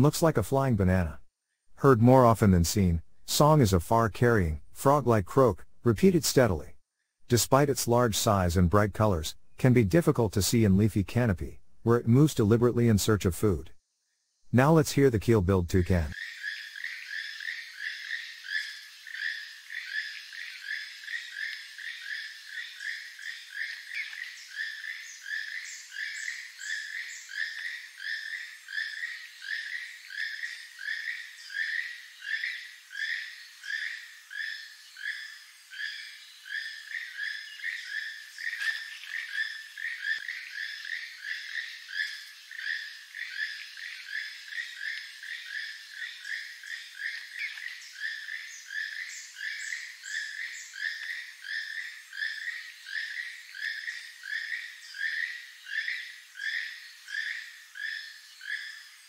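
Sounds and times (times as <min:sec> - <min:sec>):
toucan croaking: 0:15.8 - 0:58.7.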